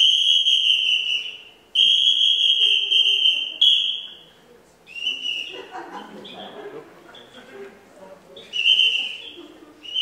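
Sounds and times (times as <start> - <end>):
high mouth whistle: 0.0 - 4.3, 4.9 - 5.6, 8.4 - 10.0.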